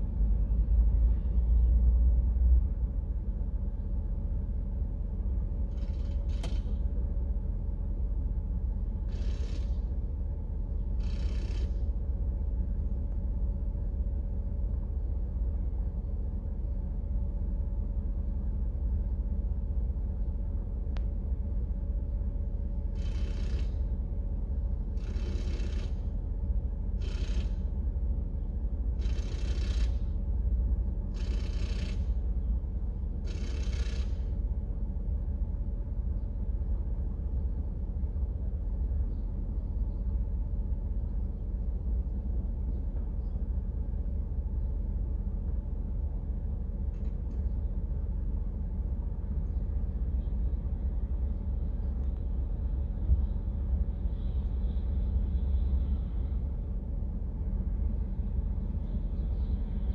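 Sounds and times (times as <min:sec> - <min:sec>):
short whirring bursts: 0:25.0 - 0:26.1, 0:33.2 - 0:34.4.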